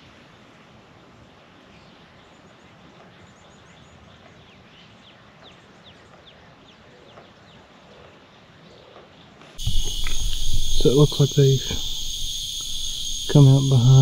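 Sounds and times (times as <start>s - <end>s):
steady background hiss: 0.0s - 14.0s
bird chirping: 9.6s - 14.0s.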